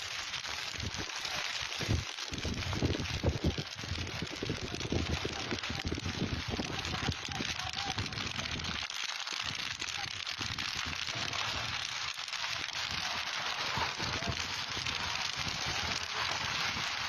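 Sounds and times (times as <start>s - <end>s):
field fire crackling: 0.0s - 17.0s.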